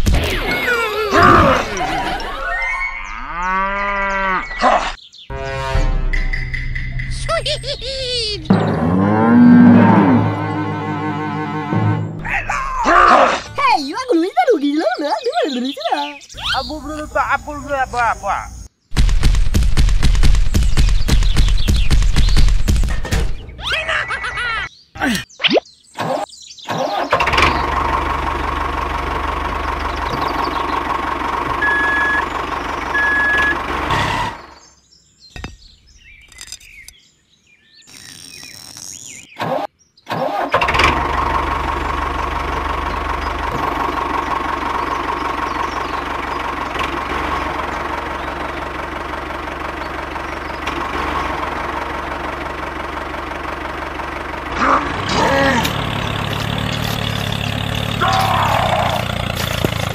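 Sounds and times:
small tractor engine running: 26.9 - 34.6, 40.4 - 59.9.

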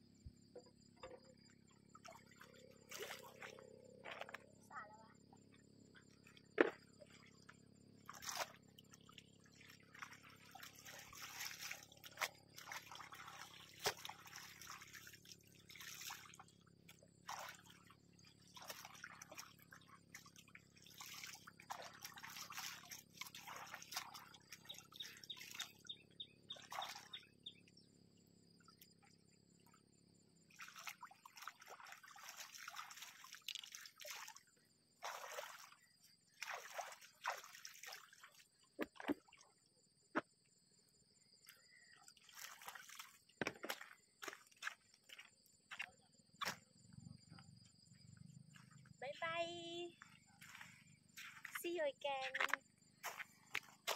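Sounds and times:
water splashing and pouring: 2.0 - 3.6, 8.1 - 16.6, 17.2 - 25.8, 30.5 - 39.5, 42.0 - 44.8.

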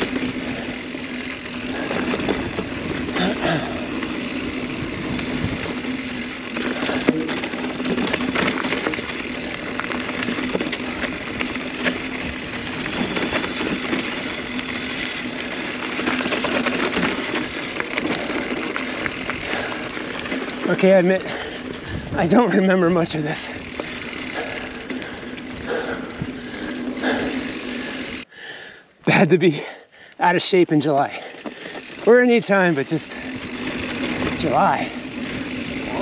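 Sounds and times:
tyres crunching over dirt and rocks: 0.0 - 21.8
bike rattling over bumps: 0.0 - 28.2, 30.5 - 36.0.

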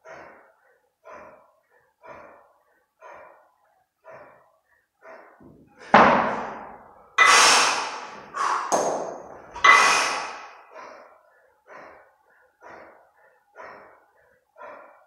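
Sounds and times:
kettlebells knocking heavily: 5.4 - 7.3, 8.4 - 9.8.

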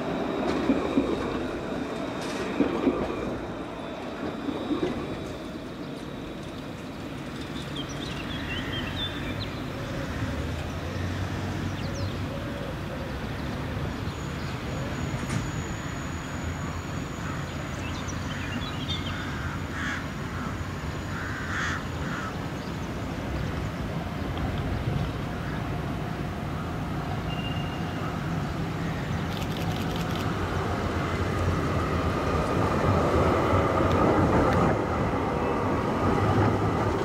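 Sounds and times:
tram rumbling: 0.0 - 37.0
crow cawing: 19.2 - 20.5, 21.1 - 22.3.

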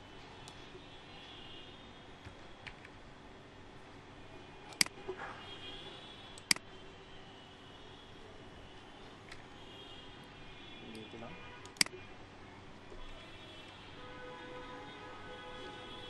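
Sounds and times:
computer mouse clicking: 4.7 - 5.0, 6.4 - 6.6.

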